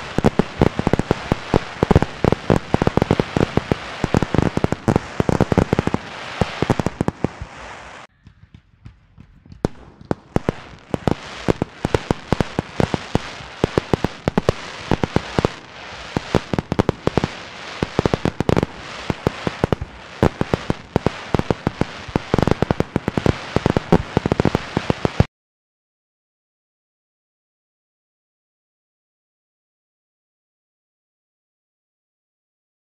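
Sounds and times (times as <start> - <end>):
fireworks bangs and crackles: 0.0 - 25.3.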